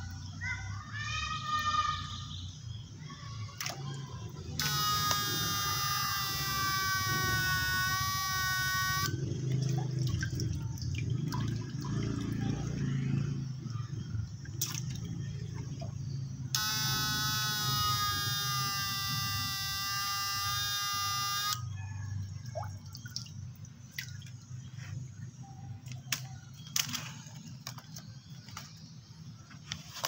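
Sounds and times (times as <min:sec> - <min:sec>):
high-pitched electronic whine: 0:04.6 - 0:09.5, 0:16.4 - 0:21.7
water sloshing: 0:09.1 - 0:16.5, 0:22.2 - 0:25.2.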